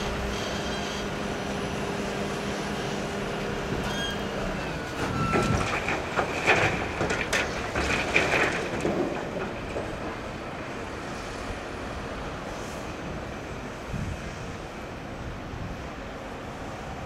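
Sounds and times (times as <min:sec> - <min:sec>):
diesel engines running: 0:00.0 - 0:17.0
debris clattering into trailer: 0:03.9 - 0:10.4.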